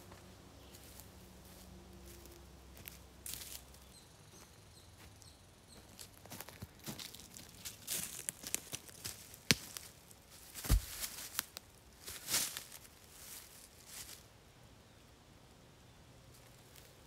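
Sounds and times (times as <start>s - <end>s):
leaves rustling: 0.0s - 3.9s, 6.0s - 14.3s
footsteps crunching dry leaves: 0.1s - 5.2s, 5.8s - 14.3s
heavy stone thud: 10.6s - 11.0s.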